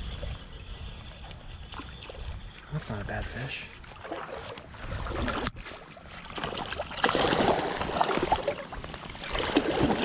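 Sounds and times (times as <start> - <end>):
fish thrashing and splashing water: 3.8 - 10.0.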